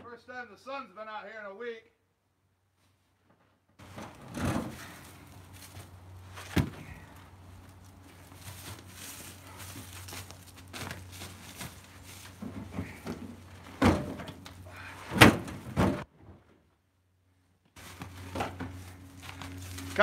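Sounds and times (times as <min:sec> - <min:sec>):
wooden knocks of firewood: 0:03.8 - 0:07.2, 0:09.6 - 0:16.1.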